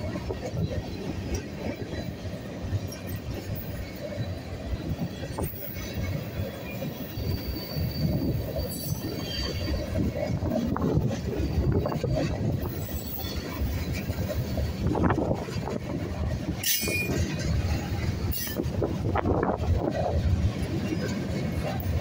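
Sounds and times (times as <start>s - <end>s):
clacks and knocks of train trucks: 0.0s - 22.0s
steel wheels rumbling on rail: 0.0s - 22.0s
high squeal: 7.0s - 9.9s.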